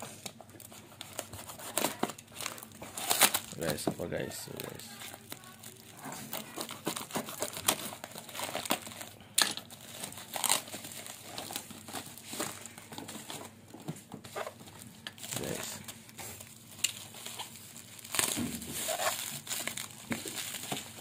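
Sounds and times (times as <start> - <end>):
cardboard and tape tearing: 0.9 - 3.8, 4.5 - 9.1, 9.8 - 13.4, 15.2 - 21.0.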